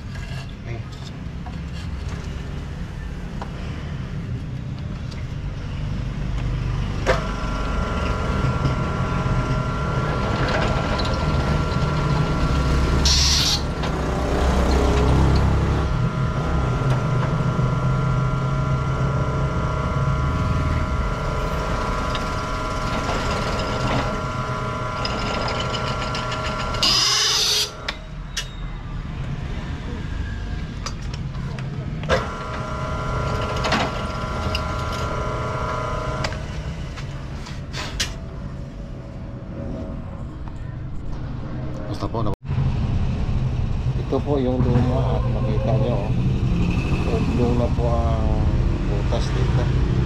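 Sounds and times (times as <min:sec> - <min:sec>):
drill press motor whining: 0:07.0 - 0:28.0, 0:32.0 - 0:37.0
drill bit screeching: 0:08.0 - 0:13.8, 0:15.7 - 0:28.6.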